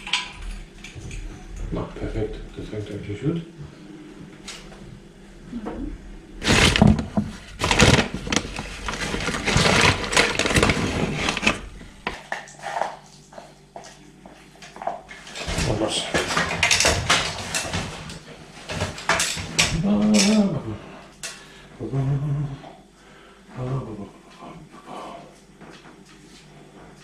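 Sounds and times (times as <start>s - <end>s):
plastic bag rustling and crinkling: 6.4s - 12.8s.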